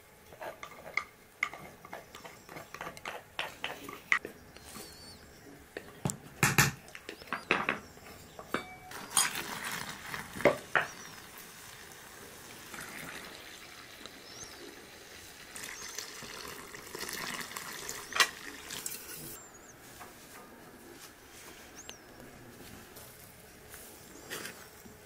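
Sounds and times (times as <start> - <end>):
kitchen utensils knocking and clinking: 8.4 - 9.5
milk pouring from a jug: 9.2 - 14.2, 15.4 - 19.1.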